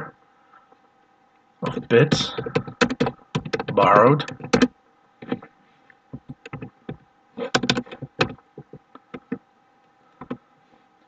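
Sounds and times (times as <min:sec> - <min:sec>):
computer keyboard typing: 0:01.7 - 0:05.5, 0:06.2 - 0:09.4.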